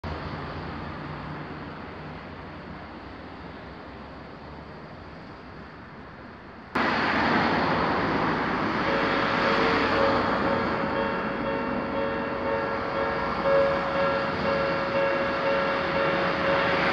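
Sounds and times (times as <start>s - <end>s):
road traffic noise: 0.0s - 16.9s
level crossing warning bell: 8.3s - 16.9s.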